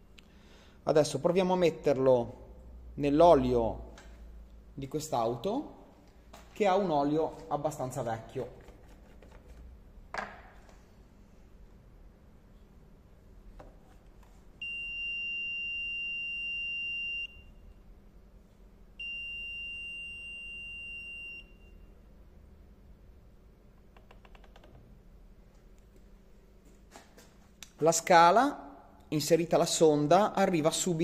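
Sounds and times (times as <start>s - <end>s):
high-pitched alarm beeps: 14.6s - 17.7s, 19.0s - 21.8s.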